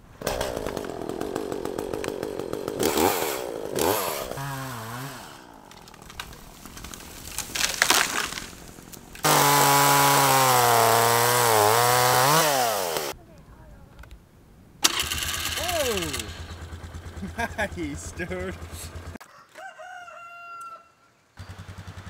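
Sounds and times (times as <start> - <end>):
chainsaw revving: 0.2 - 6.9, 9.2 - 13.2, 14.8 - 19.2
falling tree cracking: 0.2 - 13.1.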